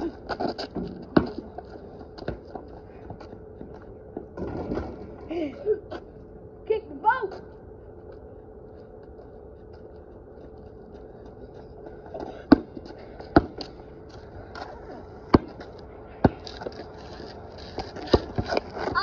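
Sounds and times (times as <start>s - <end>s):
basketball bouncing on concrete: 0.3s - 3.8s, 12.5s - 13.7s, 15.3s - 16.8s, 17.7s - 19.0s.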